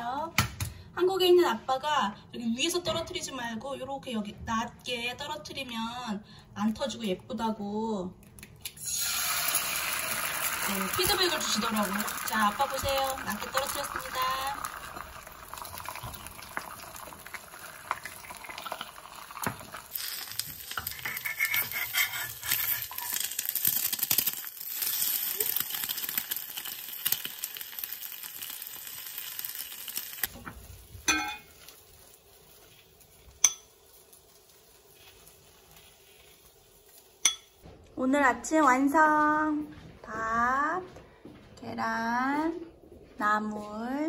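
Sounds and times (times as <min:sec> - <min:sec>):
egg sizzling in a pan: 0:08.6 - 0:37.6
metal spoon clinking on pot: 0:31.1 - 0:31.5, 0:33.4 - 0:33.8, 0:37.2 - 0:37.6.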